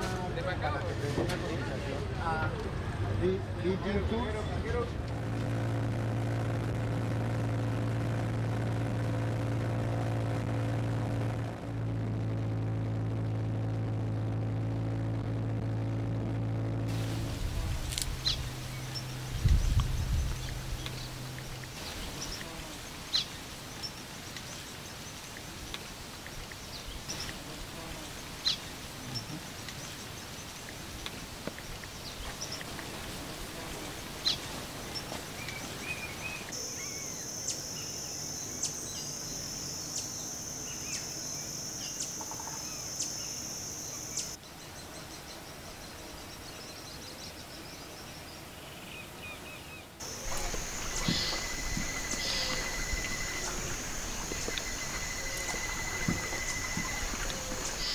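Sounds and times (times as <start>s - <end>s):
high-pitched insect drone: 36.6s - 44.4s, 50.0s - 57.9s
faint hiss: 50.0s - 57.9s
bird chirps: 50.2s - 57.9s.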